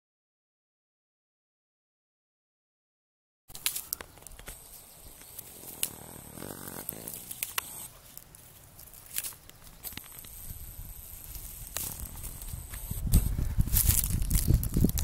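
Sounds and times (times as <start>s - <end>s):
fern shoots snapping: 3.5s - 4.6s, 5.2s - 10.6s
dry grass rustling: 3.5s - 15.0s.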